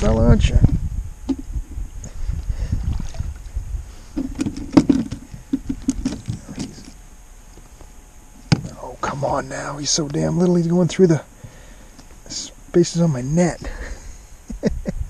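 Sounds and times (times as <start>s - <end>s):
low rumble: 0.0s - 11.3s
net and fish knocking: 4.2s - 6.8s.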